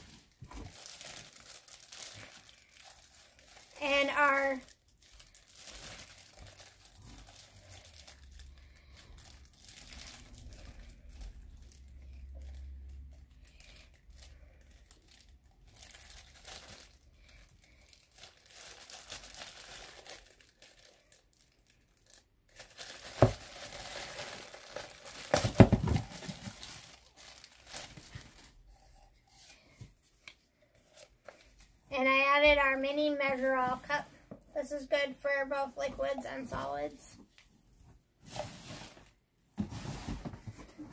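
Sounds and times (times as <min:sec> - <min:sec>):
packaging crinkling and rustling: 0:00.0 - 0:31.8.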